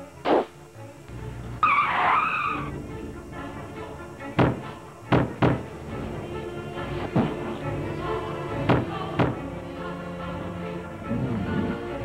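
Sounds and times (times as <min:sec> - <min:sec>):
background music: 0:00.0 - 0:12.0
tire screech sound effect: 0:01.6 - 0:02.8
sharp thuds: 0:04.4 - 0:05.7, 0:08.7 - 0:09.4.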